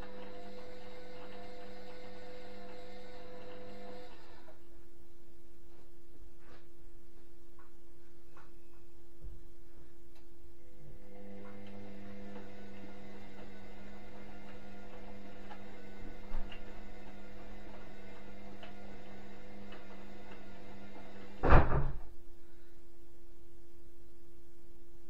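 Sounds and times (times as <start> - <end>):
washing machine humming: 0.0 - 6.1, 7.8 - 23.5
loud clunk: 21.4 - 22.1.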